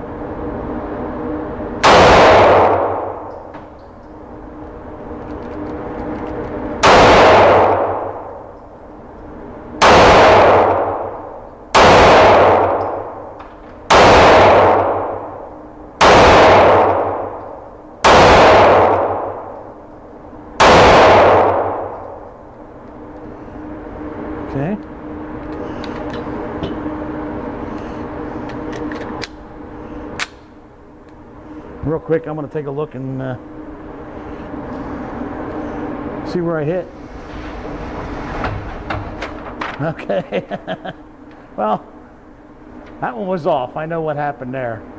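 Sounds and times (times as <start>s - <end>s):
pistol shots echoing indoors: 1.8s - 3.3s, 6.8s - 8.4s, 9.8s - 19.7s, 20.6s - 22.2s.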